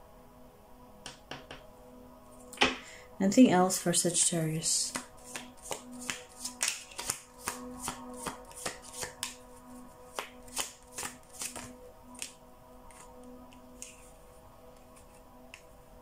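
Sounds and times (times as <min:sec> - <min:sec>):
faint background music: 0:00.0 - 0:16.0
cards being shuffled: 0:04.9 - 0:14.1.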